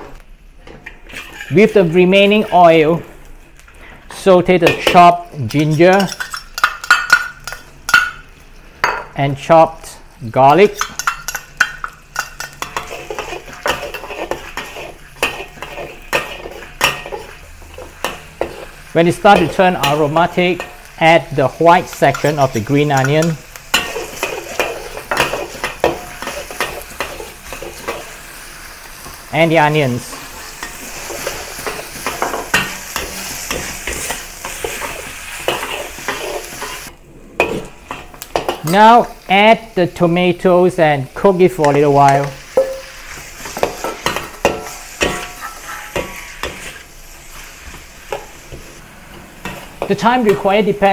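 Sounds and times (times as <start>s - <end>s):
faint sizzle: 0.0s - 50.9s
metal spatula scraping a wok: 0.9s - 2.7s, 12.2s - 20.0s, 30.0s - 38.6s, 42.5s - 50.0s.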